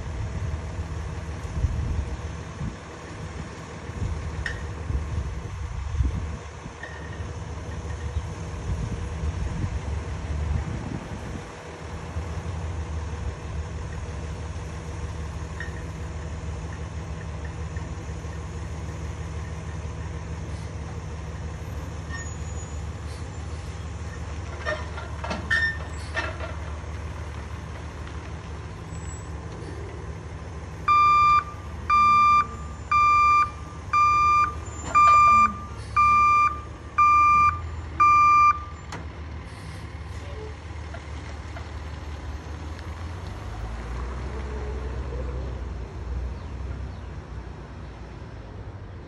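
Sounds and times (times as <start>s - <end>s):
truck engine running: 0.0s - 49.0s
reversing alarm beeps: 30.9s - 38.8s.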